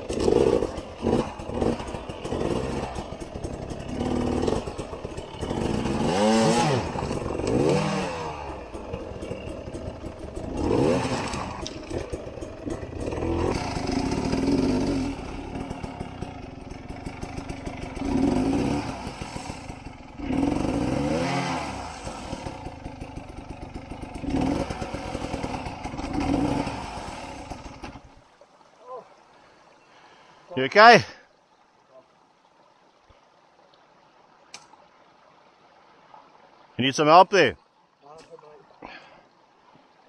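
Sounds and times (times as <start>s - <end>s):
dirt bike engines revving: 0.0s - 28.1s.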